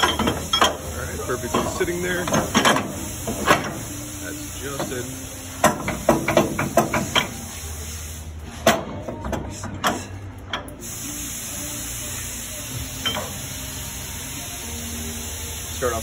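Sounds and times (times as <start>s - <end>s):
metallic clinks of tools and bolts: 13.0s - 13.3s.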